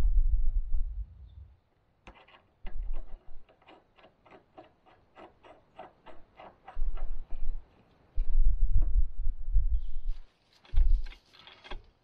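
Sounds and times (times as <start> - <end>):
brief low rumble: 0.0 - 1.6.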